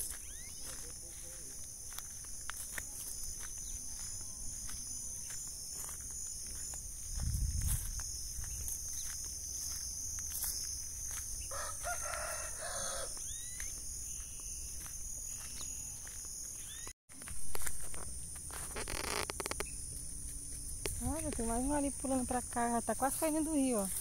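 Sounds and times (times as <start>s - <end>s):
bird chirps: 0.0s - 1.4s, 13.2s - 16.9s
insects droning: 0.0s - 24.0s
rooster crowing: 11.4s - 13.5s.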